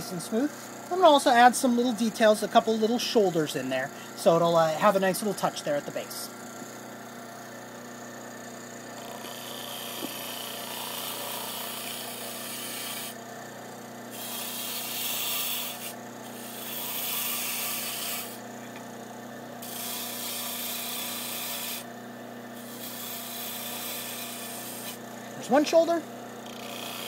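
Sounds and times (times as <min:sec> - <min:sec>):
lathe humming: 0:00.0 - 0:27.0
gouge scraping spinning wood: 0:08.4 - 0:19.0, 0:19.6 - 0:21.9, 0:22.5 - 0:27.0.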